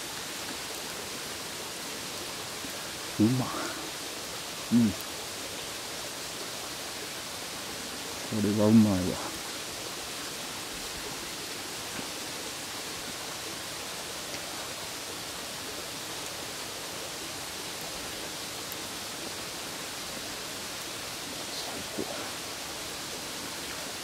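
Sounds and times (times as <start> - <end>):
steady rushing hiss: 0.0 - 24.0
faint ticks: 14.2 - 14.7.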